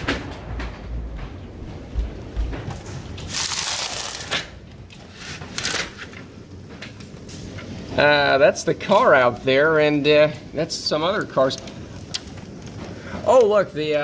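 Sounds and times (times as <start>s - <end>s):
hail clattering on windows: 5.4s - 14.0s.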